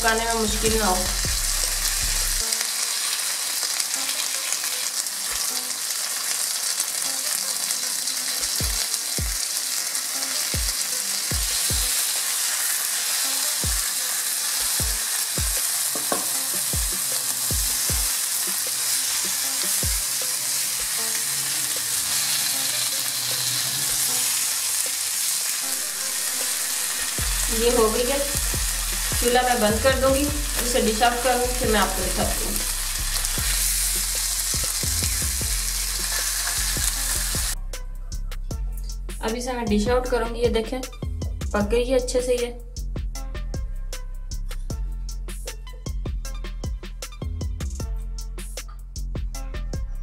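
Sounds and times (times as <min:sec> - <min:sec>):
fish sizzling in oil: 0:00.0 - 0:37.6
wooden spatula knocking on pan: 0:16.0 - 0:16.4.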